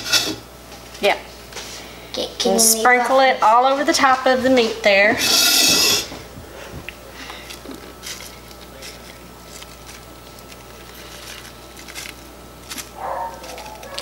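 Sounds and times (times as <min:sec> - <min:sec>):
spice seeds pattering on meat: 0:07.5 - 0:14.0
seasoning packet shaking: 0:08.0 - 0:14.0.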